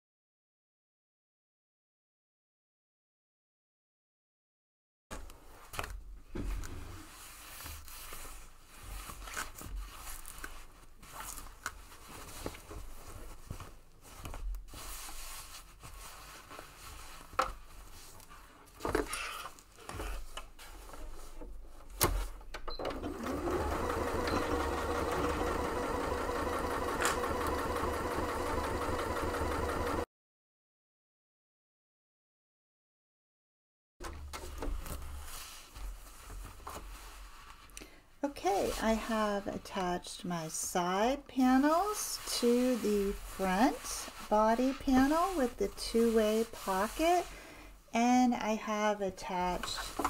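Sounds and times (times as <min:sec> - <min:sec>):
fabric being handled: 0:05.2 - 0:21.9, 0:34.4 - 0:37.8, 0:41.4 - 0:47.4
sewing machine running: 0:22.9 - 0:30.1.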